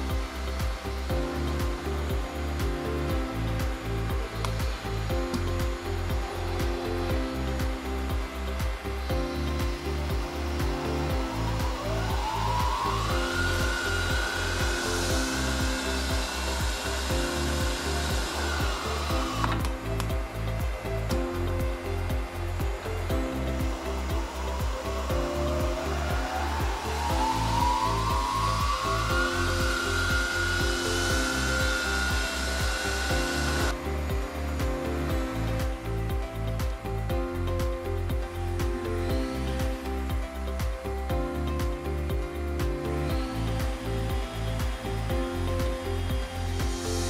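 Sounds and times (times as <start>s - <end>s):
background music with steady beat: 0.0s - 47.0s
milling machine motor whining: 8.4s - 21.1s, 21.8s - 35.2s.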